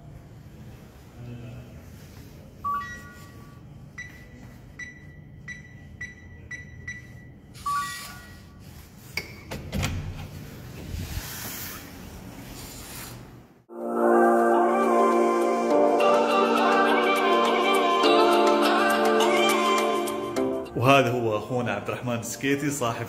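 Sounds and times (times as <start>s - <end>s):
keypad beeps: 2.6s - 8.5s.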